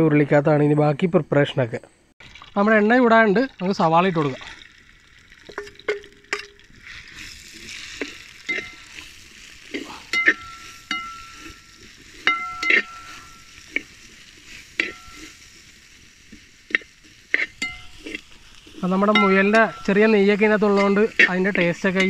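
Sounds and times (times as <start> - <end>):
onions sizzling in oil: 2.2 - 22.0
metal spatula knocking pot: 10.2 - 11.6, 12.3 - 13.4, 19.1 - 22.0.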